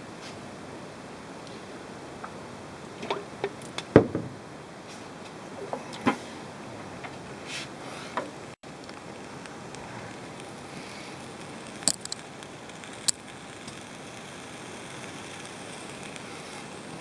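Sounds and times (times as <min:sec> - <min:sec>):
burgers sizzling on a grill: 0:08.6 - 0:17.0
sharp clicks: 0:11.4 - 0:13.9.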